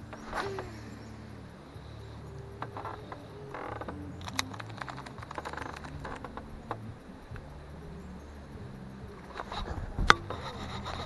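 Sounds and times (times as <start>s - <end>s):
low steady hum: 0.0s - 11.0s
fishing reel clicking and rattling: 2.6s - 6.8s.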